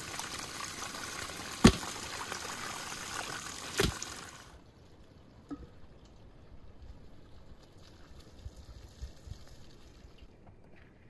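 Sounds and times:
running water pouring: 0.0s - 4.6s
faint outdoor background: 0.0s - 11.0s.

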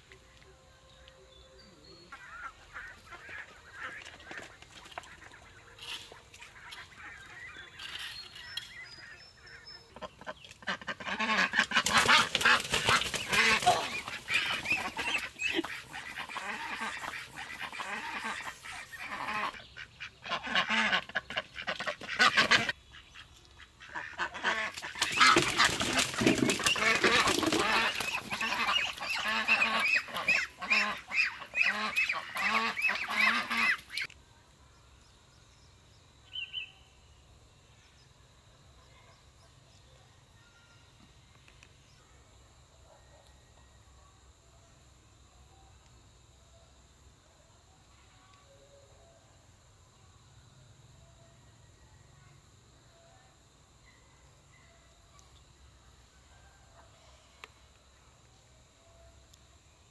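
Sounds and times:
waterfowl honking: 10.0s - 22.8s, 23.8s - 34.1s.

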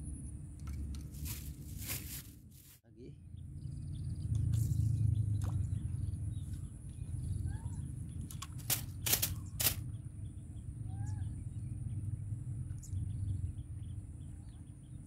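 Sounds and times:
steady low rumble: 0.0s - 15.0s
faint bird chirps: 3.0s - 8.2s, 9.4s - 15.0s.

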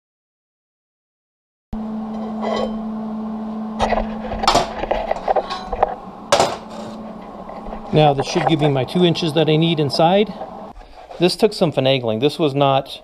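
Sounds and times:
steady low hum: 1.8s - 11.1s
steel parts clinking on metal table: 4.5s - 7.3s.

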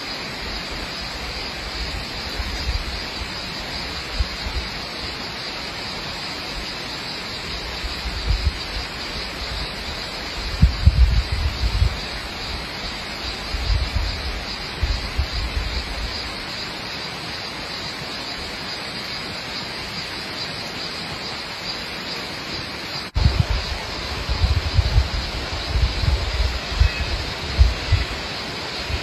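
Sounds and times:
steady rushing outdoor noise: 0.0s - 29.0s
wind buffeting microphone: 7.7s - 16.4s, 23.1s - 29.0s.

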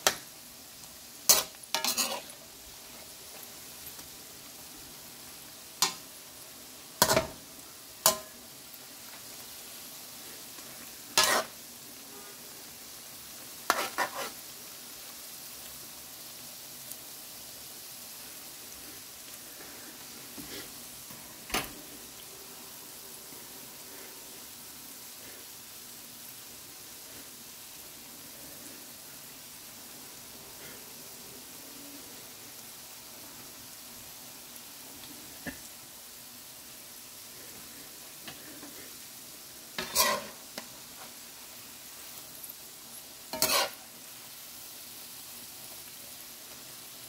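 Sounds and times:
food deep-frying in oil: 0.0s - 47.0s.

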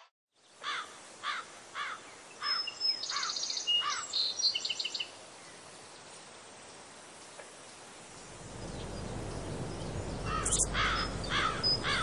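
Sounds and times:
faint outdoor hiss: 0.3s - 12.0s
bird arched call notes: 8.7s - 12.0s
bird chirps whistles and trills: 8.7s - 12.0s.

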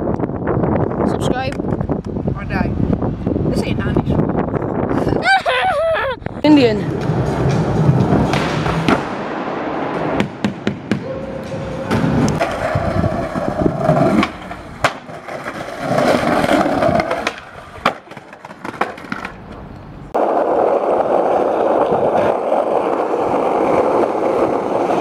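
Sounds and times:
skateboard wheels rolling on pavement: 6.6s - 25.0s
skateboard popping and landing clacks: 11.9s - 25.0s.

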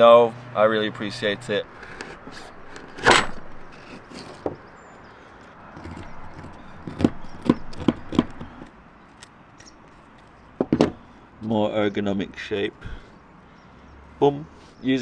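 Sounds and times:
knife carving cork: 1.7s - 4.5s, 5.8s - 8.7s.

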